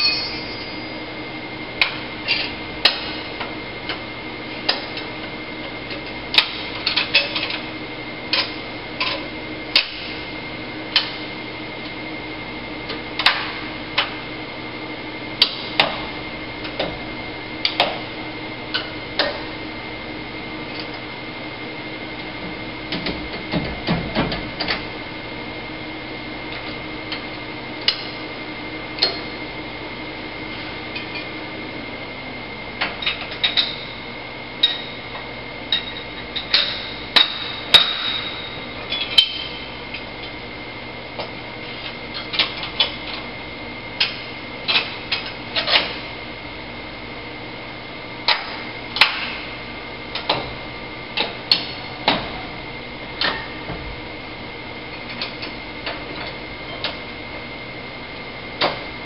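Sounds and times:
high whine: 0:00.0 - 0:03.7
steady machine hum: 0:00.0 - 0:59.0.

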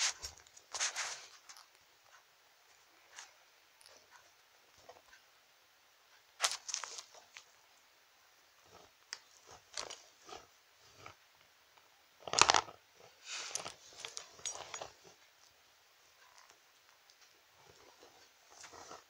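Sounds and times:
toy figures tapping and scraping: 0:08.7 - 0:11.2, 0:12.2 - 0:15.6.

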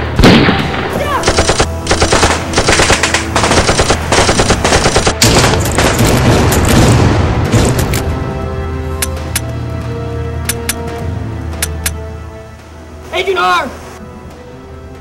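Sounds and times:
automatic gunfire bursts: 0:01.2 - 0:06.3.

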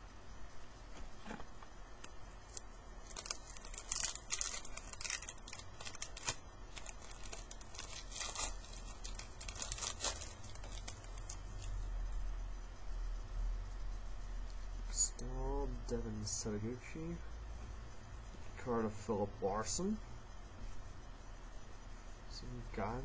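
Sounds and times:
card pack wrapper tearing: 0:02.0 - 0:11.7.

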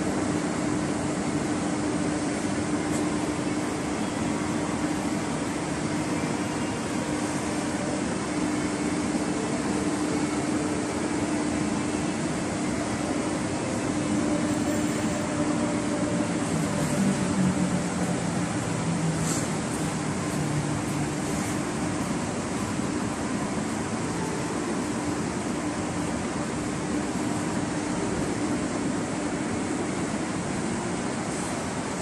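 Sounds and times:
belt conveyor humming: 0:00.0 - 0:32.0
low tone: 0:11.8 - 0:27.2.

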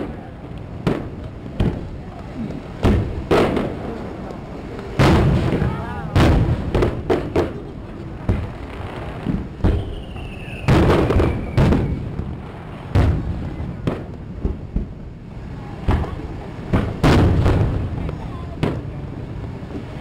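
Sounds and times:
fireworks booming: 0:00.0 - 0:20.0
faint falling whistle: 0:09.7 - 0:12.0.

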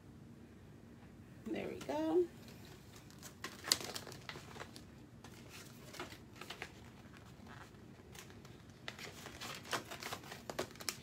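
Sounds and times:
plastic packaging crinkling: 0:02.4 - 0:11.0.

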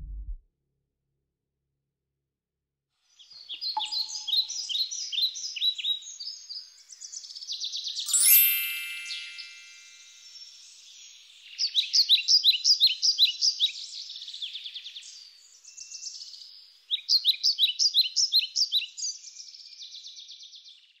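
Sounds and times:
songbird singing high notes: 0:03.6 - 0:06.4, 0:07.8 - 0:14.3.

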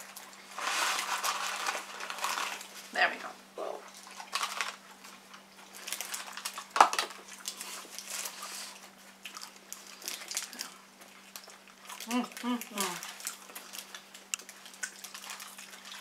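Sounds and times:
paper wrappers crinkling: 0:00.0 - 0:03.0, 0:04.0 - 0:16.0
chewing and biting food: 0:03.9 - 0:16.0.

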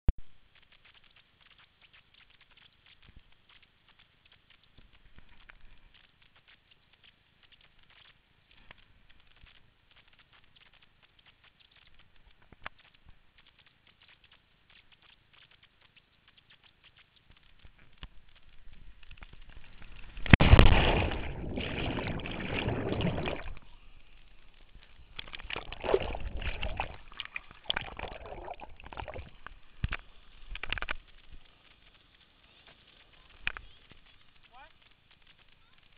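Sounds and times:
muffled churning water: 0:00.3 - 0:35.9
swimming splashes: 0:19.5 - 0:30.2
rush of air: 0:19.8 - 0:29.3
loud splash into water: 0:20.3 - 0:23.6, 0:25.4 - 0:27.0.

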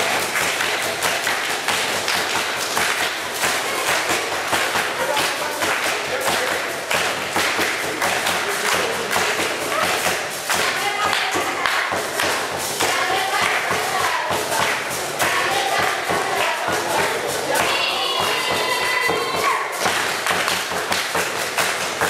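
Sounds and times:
children singing: 0:08.4 - 0:19.8.

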